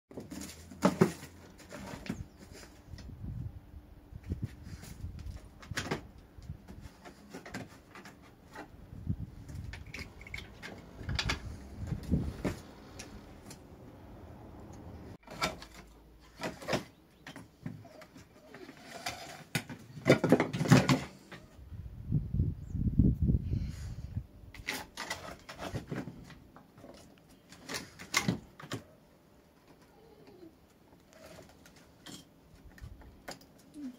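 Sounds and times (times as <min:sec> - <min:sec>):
firewood pieces knocking: 0:19.5 - 0:21.3.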